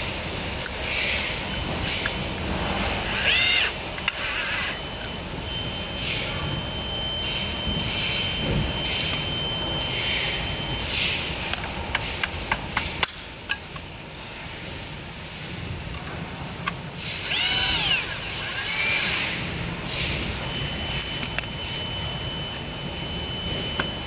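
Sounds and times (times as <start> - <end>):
power tool whine: 3.0 - 5.1, 17.0 - 20.1.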